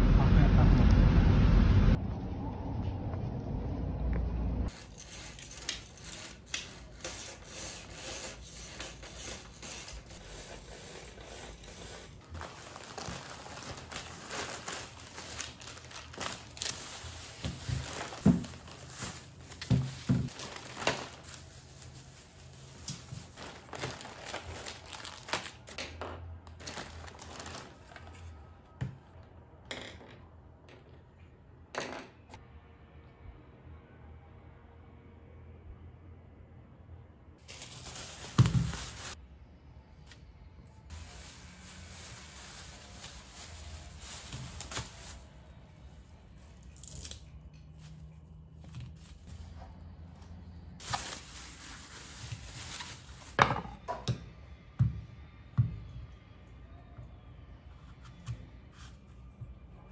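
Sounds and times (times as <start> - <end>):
plastic bags crinkling: 11.5 - 25.8, 26.6 - 28.2, 37.4 - 39.2, 40.9 - 45.3, 50.8 - 53.4
items set down on table: 53.3 - 54.2.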